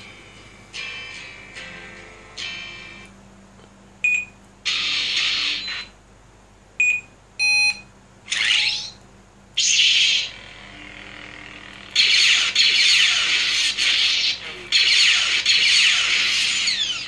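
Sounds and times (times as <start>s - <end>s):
short electronic beeps: 4.0s - 4.4s, 6.8s - 7.9s.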